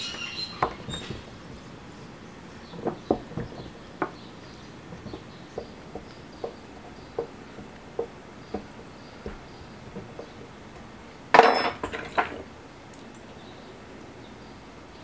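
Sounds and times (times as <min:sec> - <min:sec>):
small knocks: 0:00.0 - 0:13.3
loud clinking clatter: 0:11.3 - 0:12.5.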